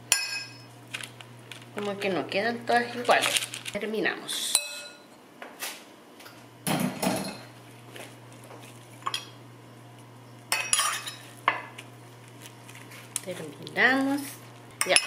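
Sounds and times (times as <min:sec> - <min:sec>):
low steady hum: 0:00.0 - 0:05.4, 0:06.0 - 0:15.0
metal spoon clinking on glass: 0:10.5 - 0:11.2.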